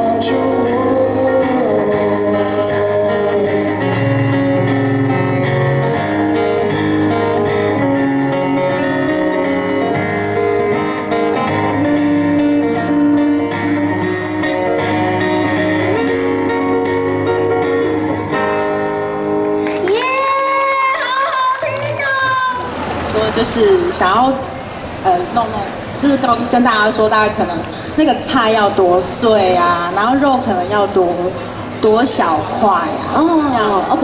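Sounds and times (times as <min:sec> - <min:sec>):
acoustic guitar strumming chords: 0:00.0 - 0:25.0.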